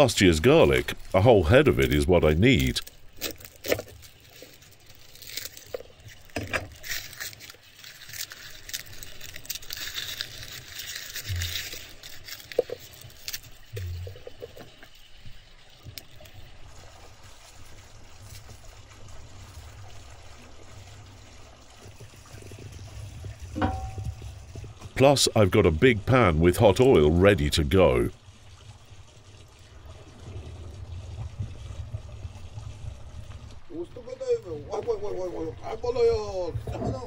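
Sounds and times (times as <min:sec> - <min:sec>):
garlic skins crackling and rustling: 0:00.1 - 0:14.9.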